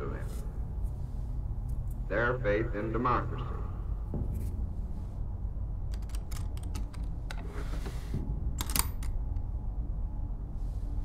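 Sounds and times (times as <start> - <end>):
steady low hum: 0.0 - 11.0
drawer sliding rustle: 7.4 - 8.2.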